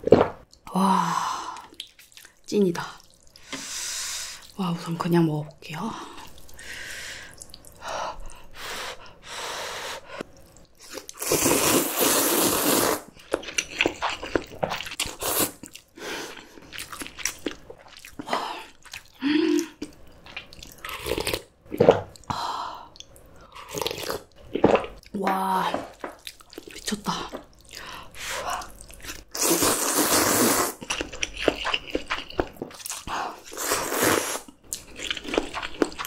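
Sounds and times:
noodles slurped: 10.8s - 22.0s, 28.4s - 36.0s
chewing: 30.8s - 33.6s, 34.7s - 36.0s.

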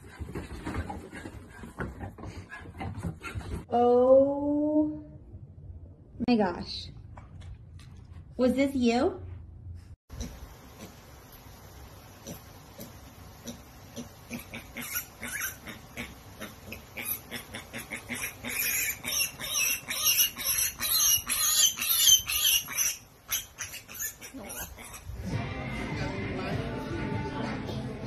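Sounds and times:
pig squealing and grunting: 12.2s - 25.3s.

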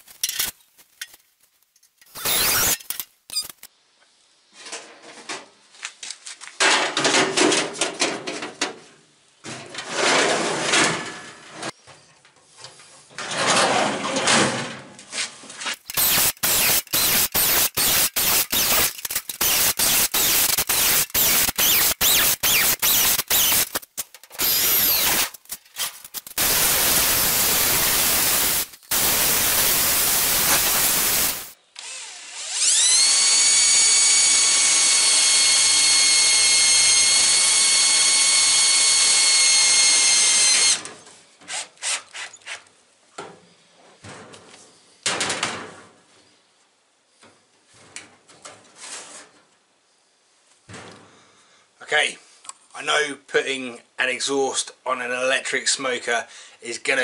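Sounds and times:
drill boring through sheet steel: 2.1s - 3.7s, 15.8s - 40.8s.

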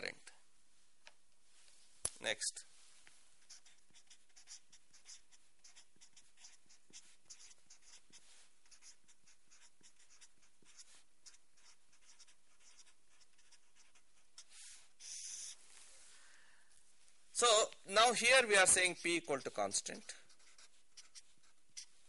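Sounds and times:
marker pen scratching on paper: 3.4s - 15.7s, 18.0s - 22.0s.

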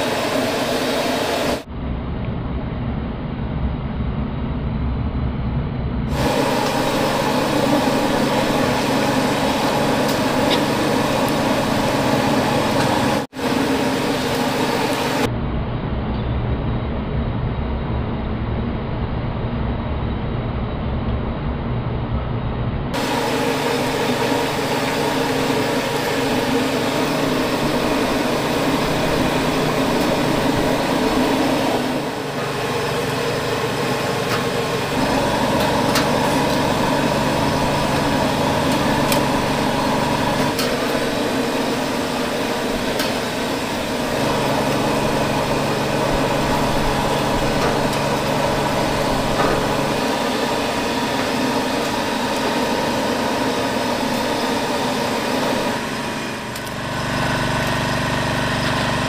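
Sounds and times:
small motor humming: 6.1s - 15.3s, 23.0s - 59.0s.

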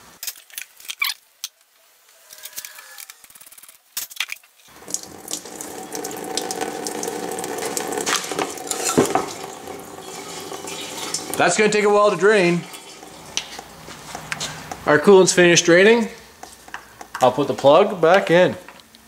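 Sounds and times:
coolant stream splashing into pan: 4.7s - 13.9s
drain pan clicks and knocks: 5.3s - 11.6s.

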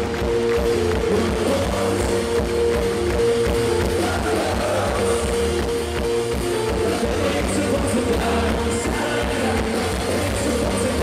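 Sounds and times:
live rock band playing: 0.0s - 11.0s.

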